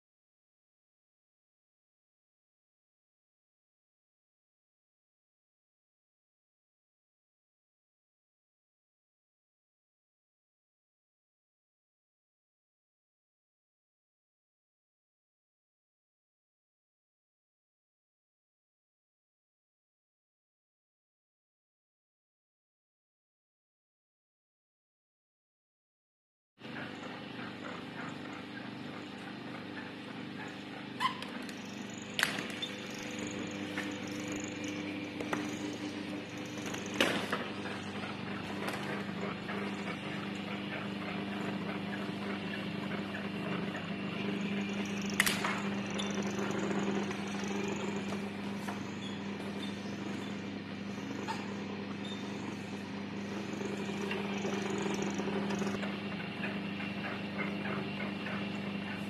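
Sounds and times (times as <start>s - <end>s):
faint rattles and ticks: 31.3s - 52.5s, 53.2s - 58.9s
electric motor humming: 31.3s - 59.0s
sharp click: 45.0s - 46.3s.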